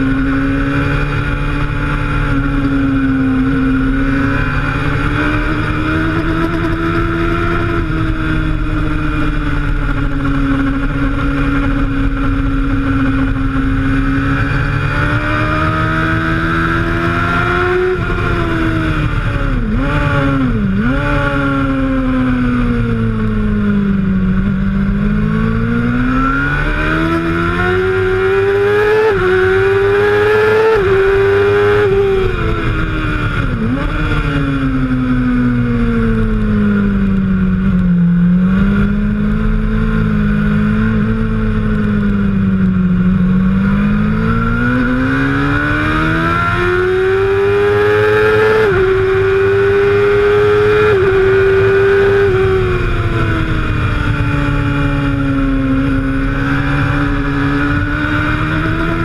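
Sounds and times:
motorcycle engine running hard: 0.0s - 59.0s.

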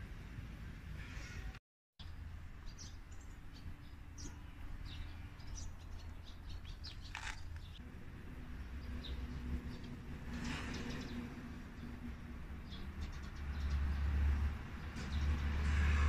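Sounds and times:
small birds chirping: 2.0s - 7.8s.

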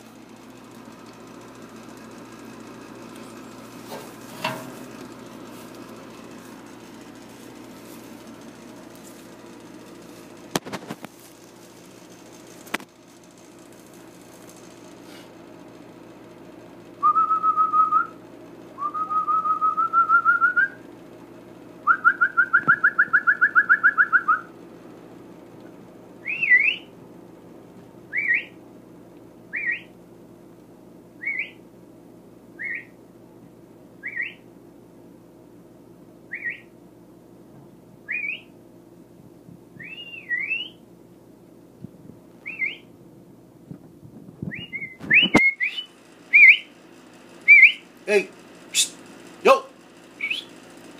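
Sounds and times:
person whistling: 18.8s - 20.8s, 39.8s - 40.8s, 50.2s - 50.5s.

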